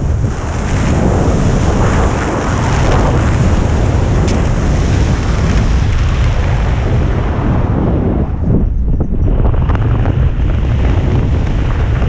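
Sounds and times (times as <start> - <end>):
wind buffeting microphone: 0.0 - 12.0.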